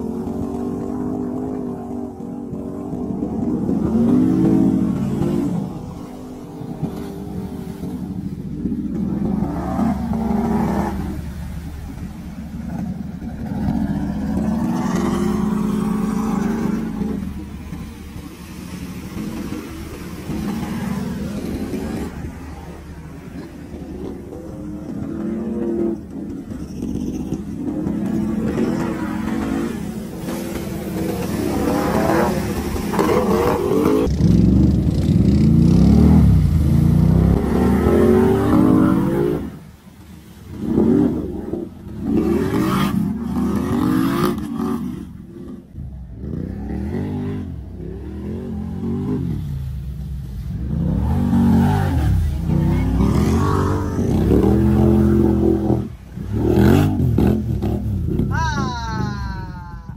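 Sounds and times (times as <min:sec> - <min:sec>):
atv engine revving through water: 0:00.0 - 0:59.6.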